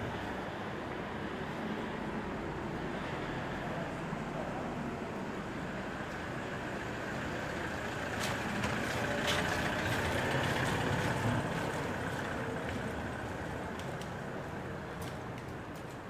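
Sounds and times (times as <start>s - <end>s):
motor vehicle passing by: 6.4s - 14.4s.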